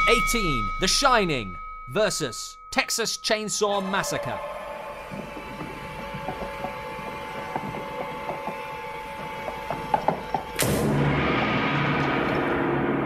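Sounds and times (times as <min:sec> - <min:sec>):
plastic tricycle wheels clacking: 0:05.1 - 0:10.6.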